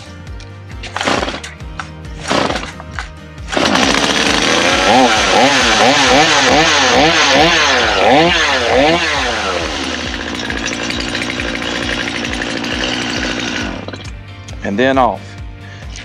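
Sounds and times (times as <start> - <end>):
chainsaw revving and idling: 2.2 - 2.7, 3.5 - 14.2.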